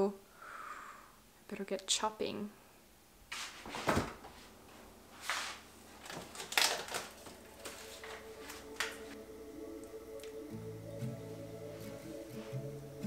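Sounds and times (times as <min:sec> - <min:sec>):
containers clunking and rustling: 0:05.9 - 0:09.1.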